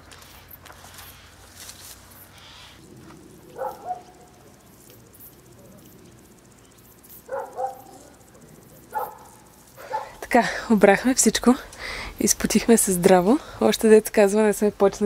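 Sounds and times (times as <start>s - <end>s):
dog barking: 3.5s - 4.4s, 7.3s - 10.2s.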